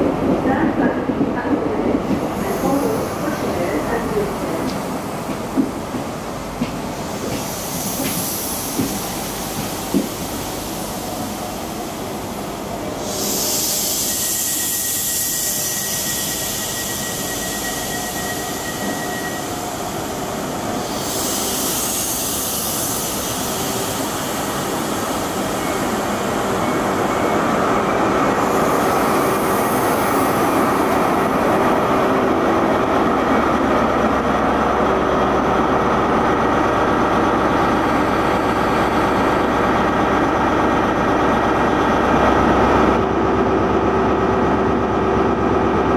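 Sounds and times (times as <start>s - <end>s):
train wheels rumbling on rail: 0.0s - 45.9s
thin high squeal: 14.0s - 19.7s
high hiss: 19.4s - 27.5s.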